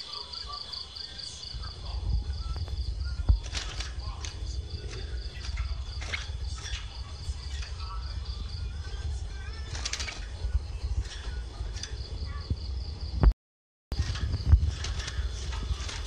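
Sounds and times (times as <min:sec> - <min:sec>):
cricket chirping: 0:00.0 - 0:13.3, 0:14.0 - 0:16.0
low rumble: 0:01.4 - 0:13.3.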